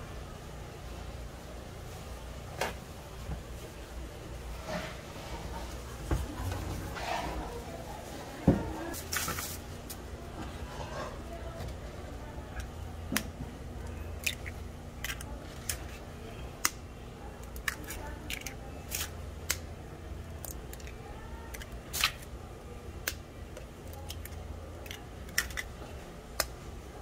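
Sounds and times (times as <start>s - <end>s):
eggshells cracking: 14.1s - 15.8s, 23.8s - 25.7s.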